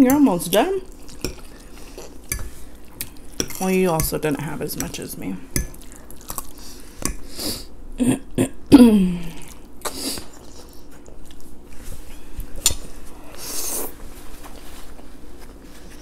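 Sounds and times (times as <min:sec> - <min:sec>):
slurping and chewing: 0:00.9 - 0:03.6, 0:05.7 - 0:07.7, 0:09.4 - 0:11.5.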